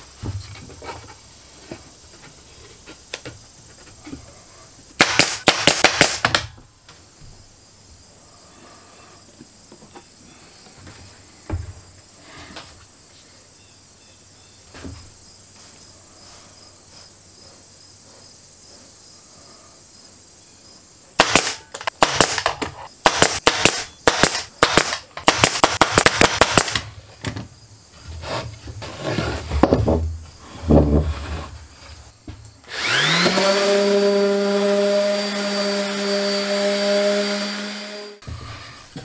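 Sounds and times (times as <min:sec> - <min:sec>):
nail gun firing: 0:05.0 - 0:06.5, 0:21.2 - 0:26.9.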